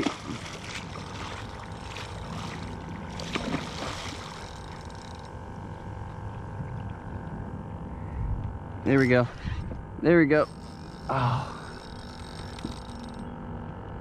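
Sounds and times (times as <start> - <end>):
fish splashing in water: 0.0 - 5.2
wind and water noise: 0.0 - 13.8
faint steady hum: 0.0 - 14.0.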